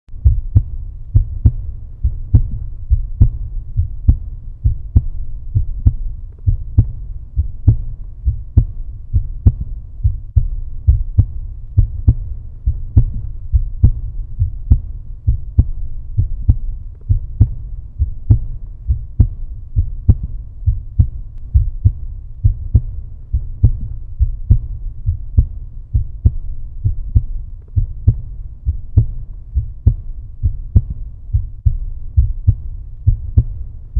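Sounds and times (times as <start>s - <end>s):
heartbeat: 0.1s - 33.9s.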